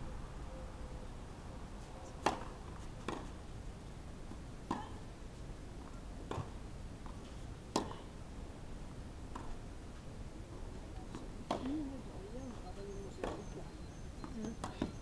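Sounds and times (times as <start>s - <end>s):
tennis ball struck by rackets: 2.2s - 3.3s, 6.3s - 6.6s, 7.7s - 8.0s, 9.3s - 9.5s, 13.2s - 13.4s.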